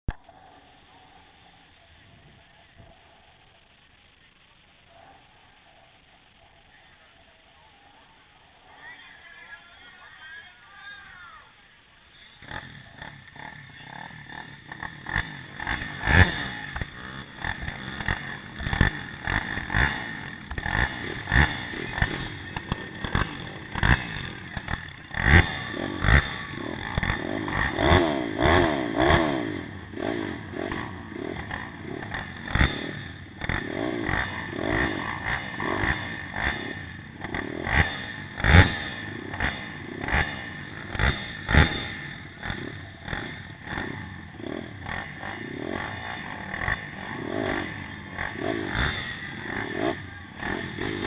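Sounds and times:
motorbike engine revving: 7.6s - 51.0s.

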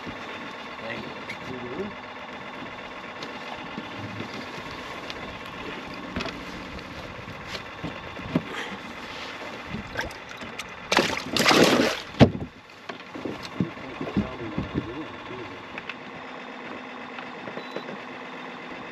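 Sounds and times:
fish splashing in water: 9.8s - 12.2s
water wash: 10.9s - 12.2s.

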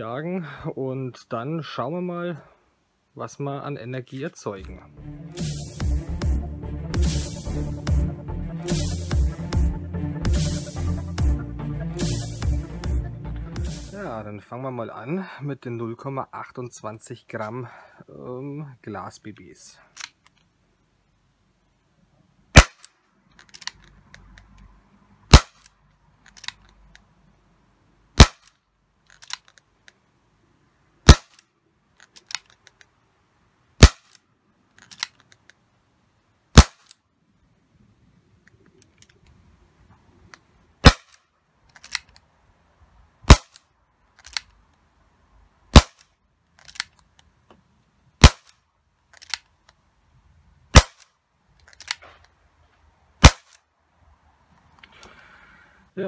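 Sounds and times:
airsoft revolver shots: 22.5s - 22.9s, 25.3s - 25.7s, 28.2s - 28.5s, 31.0s - 31.4s, 33.8s - 34.2s, 36.5s - 36.9s, 40.8s - 41.2s, 43.3s - 43.6s, 45.7s - 46.1s, 48.2s - 48.6s, 50.7s - 51.1s, 53.2s - 53.6s.

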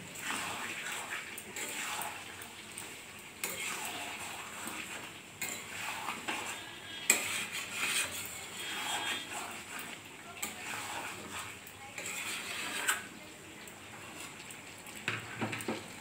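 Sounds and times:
food sizzling faintly: 0.0s - 16.0s
spatula scraping metal pan: 0.2s - 2.4s, 3.4s - 13.2s.

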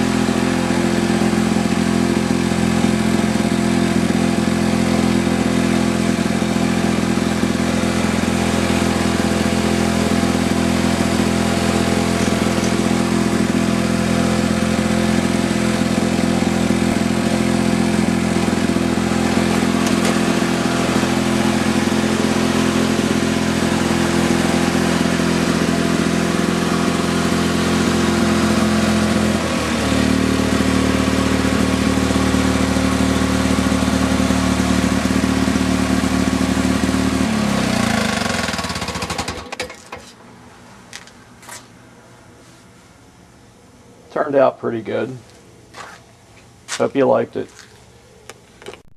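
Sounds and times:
lawn mower engine running: 0.0s - 41.9s.

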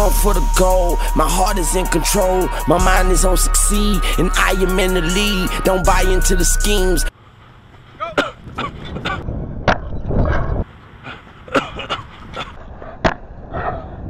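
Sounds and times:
wind rumble on microphone: 8.4s - 10.7s.

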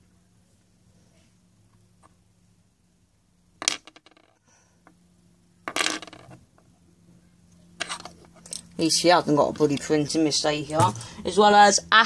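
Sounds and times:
plastic figures clattering on wood: 5.7s - 6.4s.

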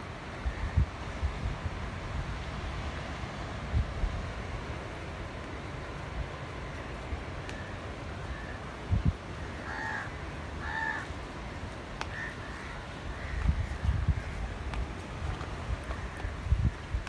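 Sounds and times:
crow cawing: 8.3s - 8.6s, 9.4s - 11.1s, 12.0s - 14.5s.

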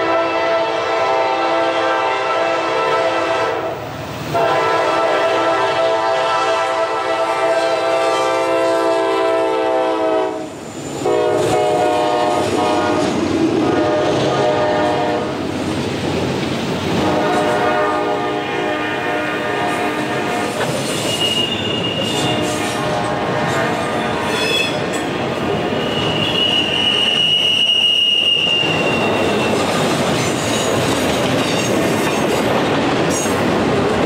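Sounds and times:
locomotive air horn blasts: 0.0s - 15.4s, 17.0s - 24.9s, 25.6s - 29.4s
freight cars rumbling on rails: 8.4s - 34.0s.

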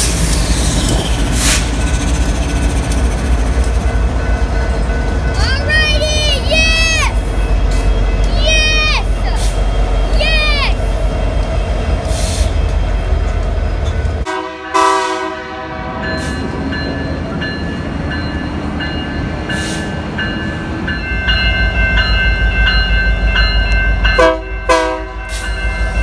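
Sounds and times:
diesel locomotive rumble: 0.0s - 26.0s
crossing signal bell ringing: 2.3s - 10.7s, 16.0s - 26.0s
train air horn blasts: 14.2s - 16.0s, 24.2s - 25.2s.

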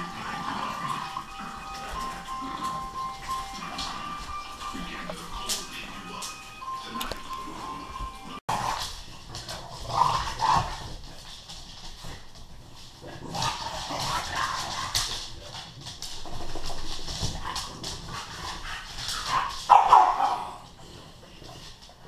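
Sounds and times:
dogs barking and whimpering: 0.0s - 8.8s, 17.5s - 20.8s.

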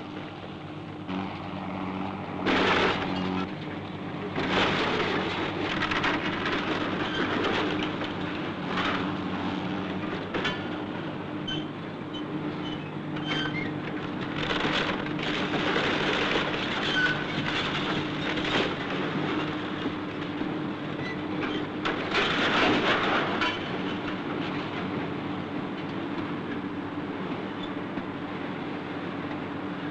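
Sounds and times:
excavator engine running: 0.0s - 29.9s
rubble crunching and crashing: 4.3s - 9.2s, 14.1s - 20.6s, 21.7s - 24.7s.

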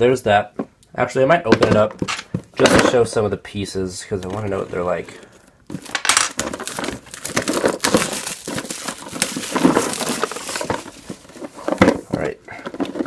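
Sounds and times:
cardboard rustling and scraping: 4.1s - 13.0s.

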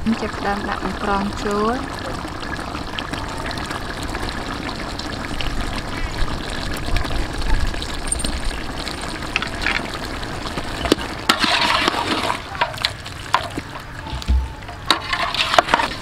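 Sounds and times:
ladle stirring sloshing broth: 11.3s - 16.0s.

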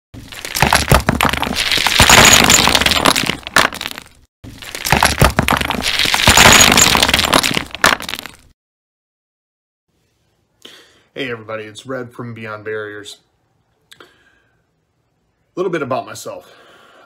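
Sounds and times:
debris clattering: 0.2s - 8.5s
wall cracking: 0.2s - 8.5s.

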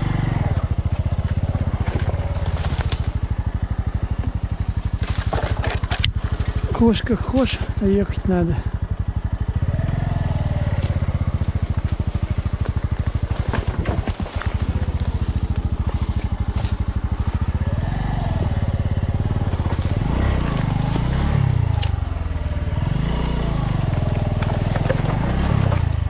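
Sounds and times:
motorcycle engine revving: 0.0s - 26.0s
sharp clicks and cracks: 1.2s - 3.3s, 4.9s - 6.8s, 19.5s - 22.0s.

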